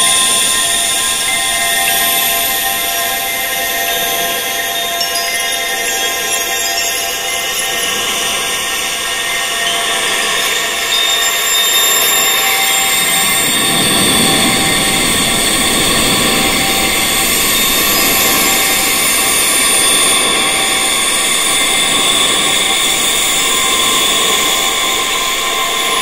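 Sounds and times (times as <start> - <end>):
wind chimes ringing: 0.0 - 26.0.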